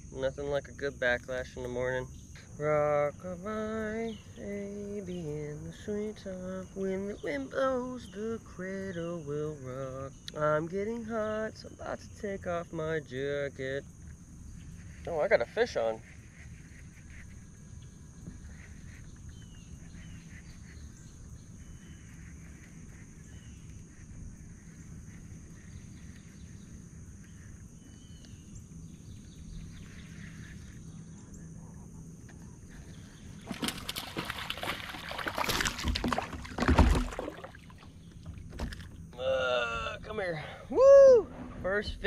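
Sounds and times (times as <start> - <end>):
faint bird chirps: 1.3 - 33.4
fish splashing in water: 33.4 - 38.9.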